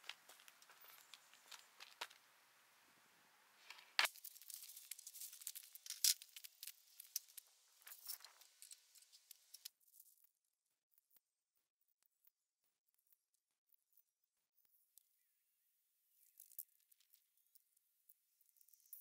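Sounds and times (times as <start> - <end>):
footsteps on grit and leaves: 0.0 - 2.2
rustling and scraping: 3.6 - 9.7.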